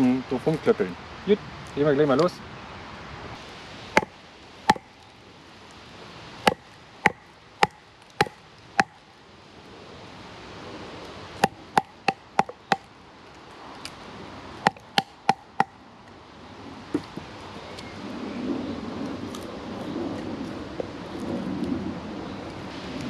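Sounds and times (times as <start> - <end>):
blade chopping into log: 6.5 - 9.0, 11.4 - 12.8, 14.7 - 15.7.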